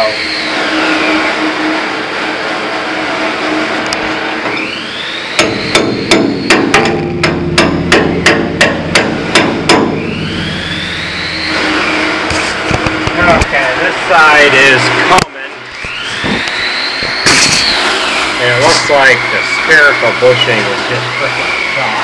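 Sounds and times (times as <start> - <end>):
steady machine noise: 0.0 - 22.0
hammer striking steel: 5.3 - 13.2.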